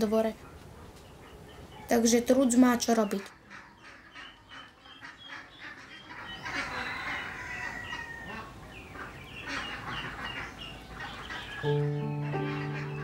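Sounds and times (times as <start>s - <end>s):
ducks and ducklings calling: 0.3s - 13.0s.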